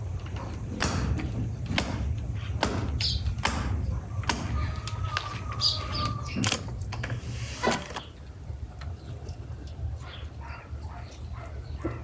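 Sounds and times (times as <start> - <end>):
sharp knocks: 0.7 - 4.6.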